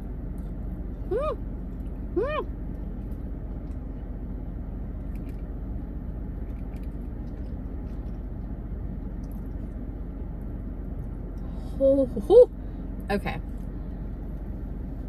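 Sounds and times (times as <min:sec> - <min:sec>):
car engine rumble inside cabin: 0:00.0 - 0:15.0
person chewing a cookie: 0:04.9 - 0:05.6, 0:06.3 - 0:09.8.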